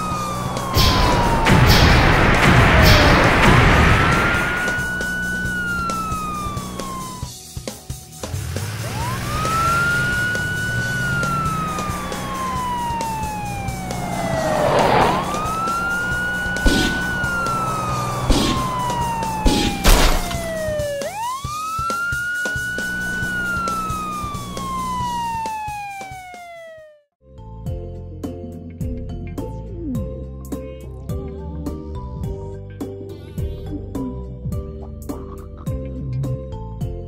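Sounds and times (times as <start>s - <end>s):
police siren wailing: 0.0s - 7.4s, 8.6s - 27.1s
short sharp hits: 11.1s - 20.9s.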